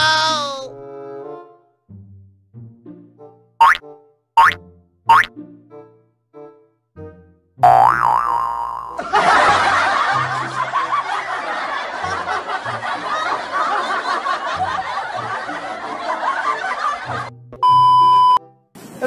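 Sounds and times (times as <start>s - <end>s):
canned laughter: 9.0s - 17.3s
steady electronic beep: 17.6s - 18.4s.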